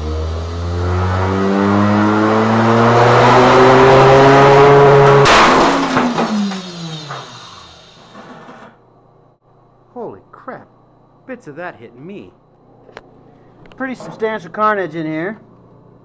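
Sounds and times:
motor whine: 3.8 - 8.4
record shattering: 5.0 - 7.3.

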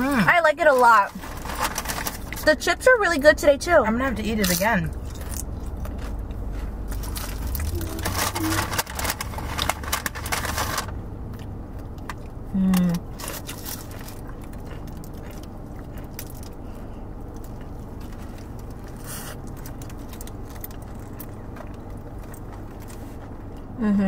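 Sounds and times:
steady low hum: 0.0 - 24.0
foil wrapper crinkling: 0.7 - 2.6, 6.8 - 11.0
biting and chewing: 4.4 - 23.8
person humming: 7.6 - 8.7, 12.5 - 13.0.

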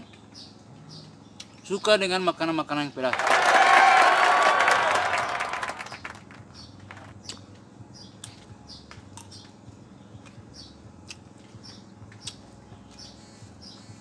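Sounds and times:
small bird chirping: 0.0 - 2.0, 5.9 - 14.0.

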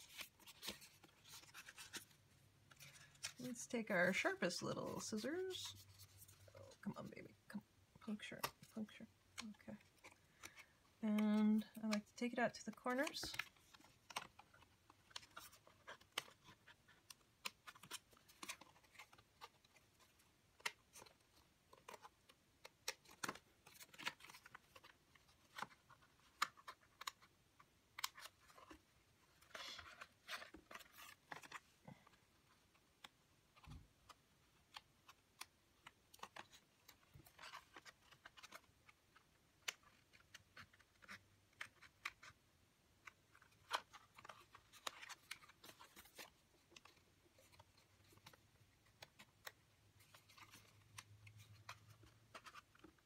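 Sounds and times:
paper rustling: 0.0 - 7.0, 28.0 - 42.4, 43.0 - 53.0.

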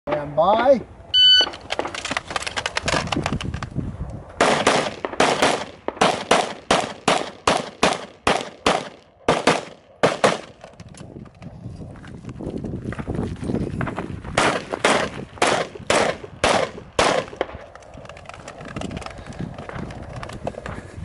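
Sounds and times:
rapid handgun shots: 4.4 - 10.6, 14.3 - 17.6
running footsteps on dirt: 10.8 - 14.8, 17.6 - 21.0.

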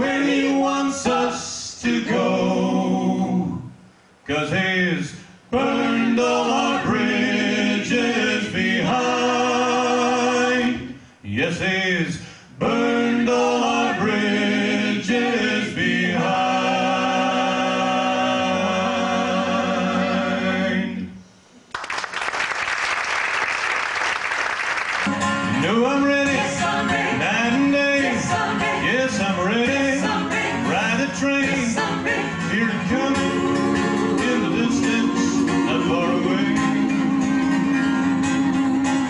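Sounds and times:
voices singing in close harmony: 0.0 - 3.8, 5.5 - 11.0, 12.6 - 21.2, 25.5 - 39.0
audience applause: 21.7 - 25.1
acoustic guitar: 24.9 - 39.0.

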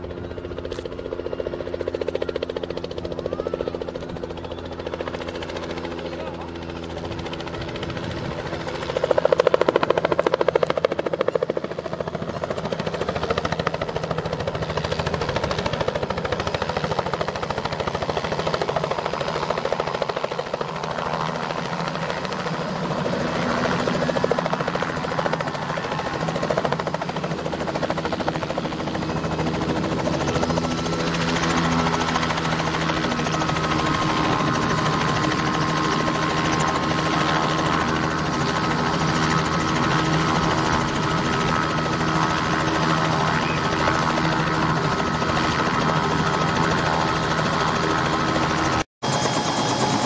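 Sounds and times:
helicopter rotor chop: 0.0 - 50.0
turbine whine: 27.8 - 50.0.

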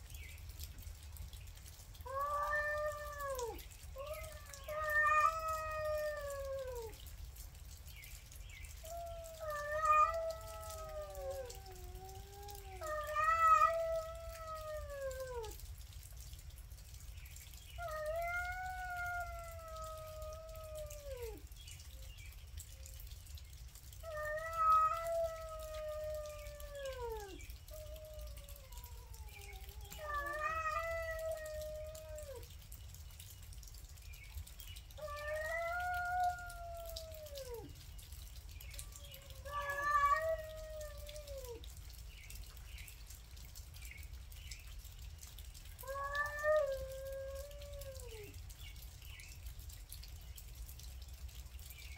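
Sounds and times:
cats yowling: 1.6 - 7.2, 8.7 - 15.8, 17.7 - 21.6, 23.9 - 32.7, 34.9 - 41.8, 45.6 - 48.5.

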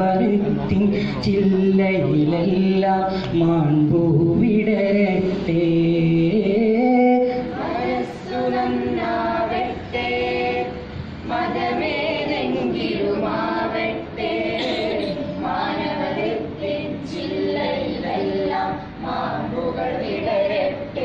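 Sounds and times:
group singing unaccompanied: 0.0 - 21.0
singers breathing: 3.1 - 3.4.

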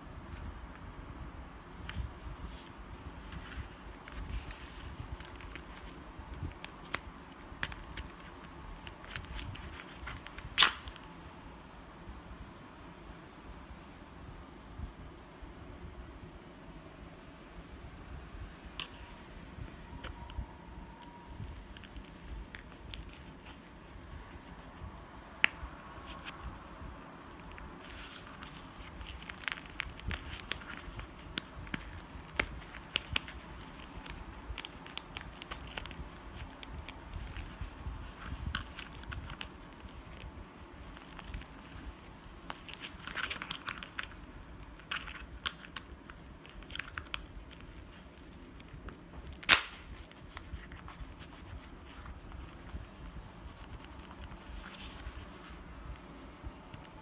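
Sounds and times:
plastic parts clicking and crinkling: 42.5 - 50.5
sharp plastic snap: 49.4 - 49.9.

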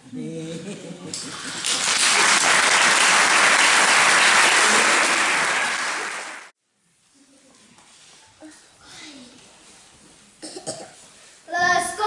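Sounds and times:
audience applauding: 1.2 - 6.5.

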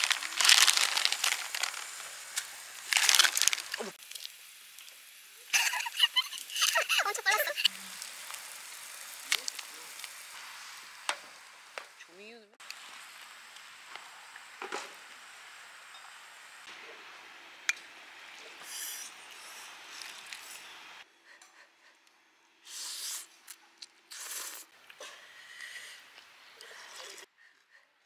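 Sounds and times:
gas stove hiss: 1.1 - 12.0
noodles slurped: 22.7 - 24.8.

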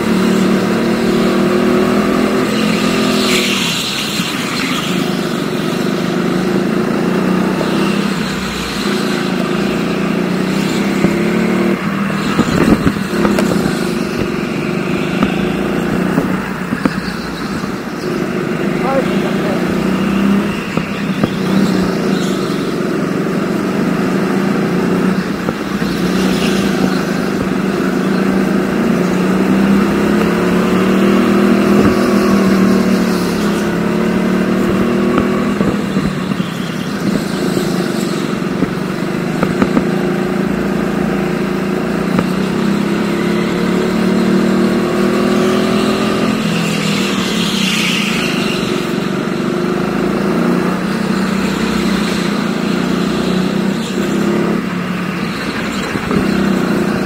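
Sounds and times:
go-kart engine revving: 0.0 - 57.0.

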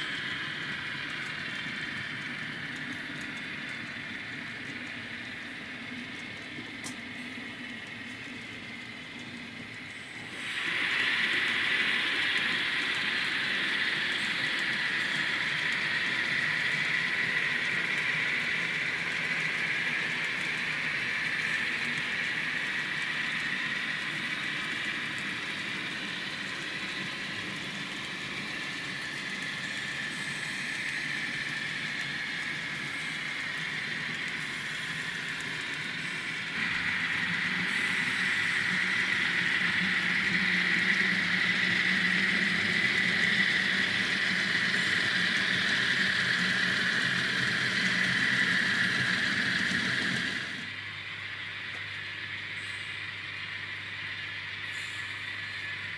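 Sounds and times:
model train motor whirring: 0.0 - 55.9.

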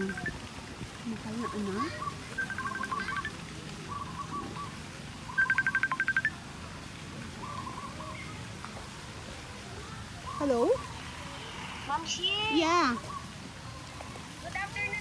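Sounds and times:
phone ringtone high beeps: 0.0 - 0.4, 2.4 - 3.3, 5.4 - 6.4.

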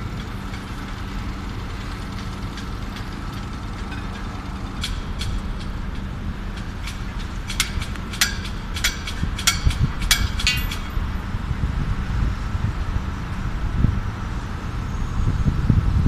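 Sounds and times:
sharp metallic clanks: 0.0 - 11.3
engines rumbling: 0.0 - 16.0
road traffic: 0.0 - 16.0.

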